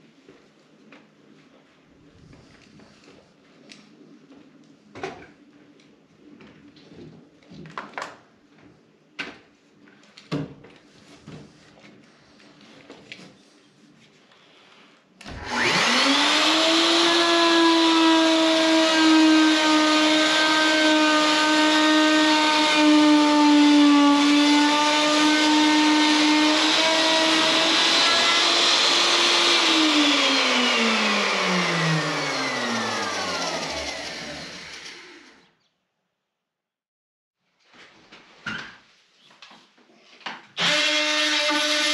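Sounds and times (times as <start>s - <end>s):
power cutting tool cutting: 15.3s - 35.4s, 40.6s - 41.9s.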